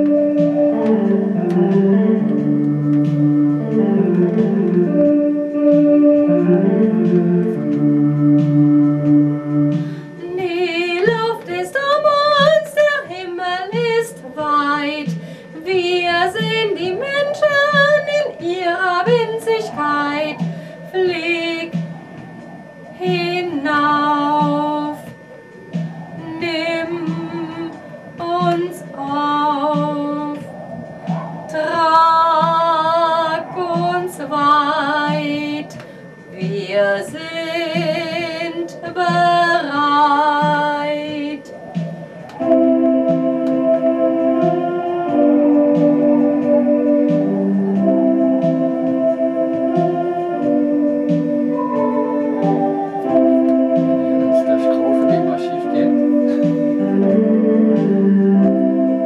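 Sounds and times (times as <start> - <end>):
sustained instrumental accompaniment: 0.0 - 59.0
woman singing with vibrato: 9.9 - 30.5, 31.4 - 44.7.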